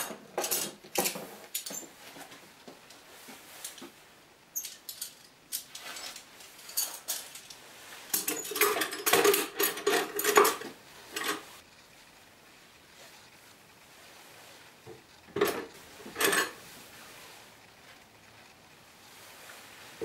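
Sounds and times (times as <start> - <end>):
metal tools clinking on wood: 0.0 - 2.0, 4.6 - 11.5, 15.3 - 16.6
knocks and rattles: 8.1 - 11.5.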